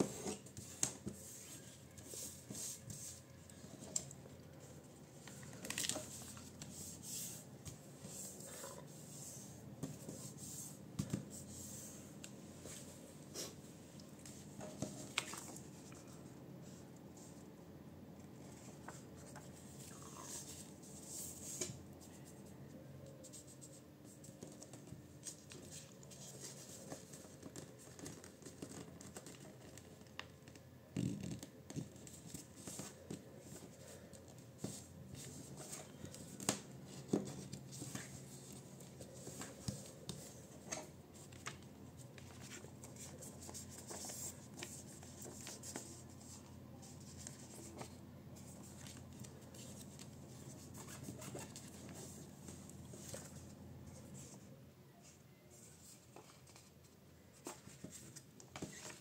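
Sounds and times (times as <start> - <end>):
paper rustling and crinkling: 0.0 - 10.3, 14.2 - 16.2, 24.2 - 30.6, 31.2 - 53.5, 55.6 - 59.0.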